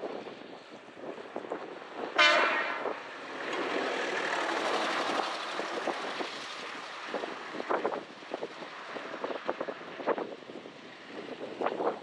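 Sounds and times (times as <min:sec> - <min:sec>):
gusting wind: 0:00.0 - 0:12.0
railcar rushing noise: 0:00.0 - 0:12.0
railcar horn blast: 0:02.2 - 0:03.0.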